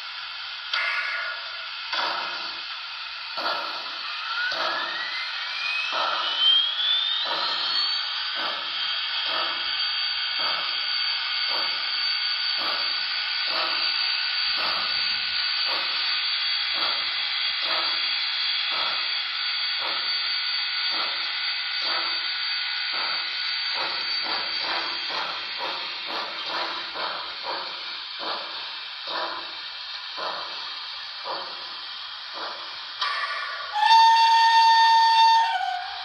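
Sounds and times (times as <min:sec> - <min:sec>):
steam locomotive chuffs: 0:00.0 - 0:36.0
steady steam hiss: 0:19.8 - 0:36.0.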